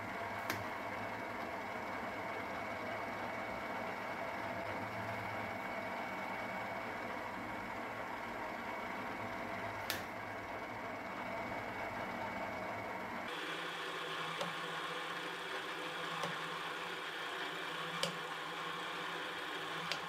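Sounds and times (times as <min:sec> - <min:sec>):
drill press motor running: 0:00.0 - 0:20.0
drill bit drilling plastic pipe: 0:13.3 - 0:20.0.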